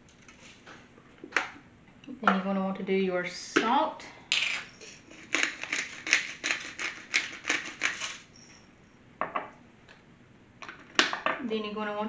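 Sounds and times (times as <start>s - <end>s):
salt grinder crunching: 5.1s - 8.2s.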